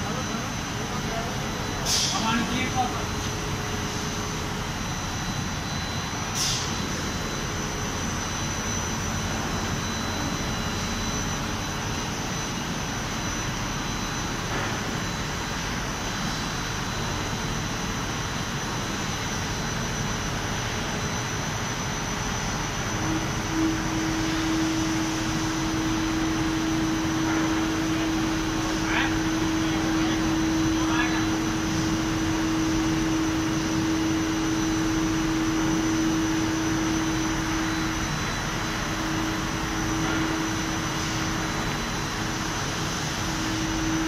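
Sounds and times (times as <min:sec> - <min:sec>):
steady low hum: 0:00.0 - 0:44.0
thin high whine: 0:00.0 - 0:44.0.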